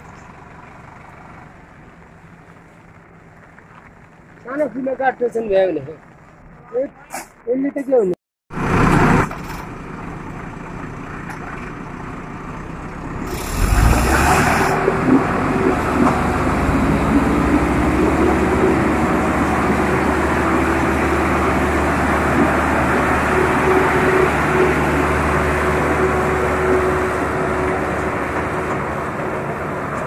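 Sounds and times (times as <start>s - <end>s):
diesel engines rumbling: 0.0s - 30.0s
wavering engine whine: 12.1s - 30.0s.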